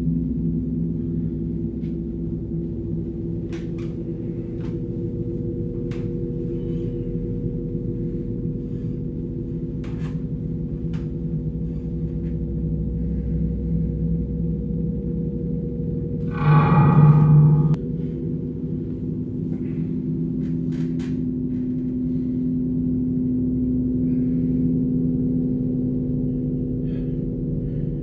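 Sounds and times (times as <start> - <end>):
dark low drone: 0.0 - 28.0
buzzing tone: 16.2 - 18.9.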